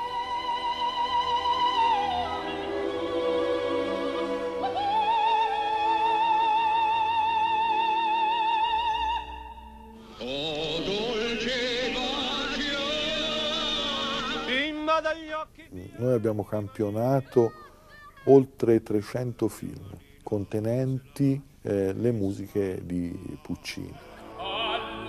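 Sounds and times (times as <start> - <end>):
orchestral music: 0.0 - 14.6
operatic singing: 0.0 - 16.5, 23.2 - 25.0.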